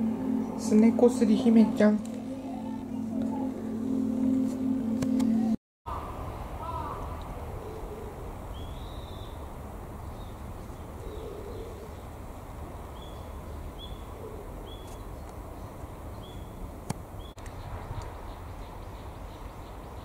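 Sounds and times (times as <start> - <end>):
bird chirping: 7.5 - 12.2, 12.9 - 16.6, 17.2 - 20.0.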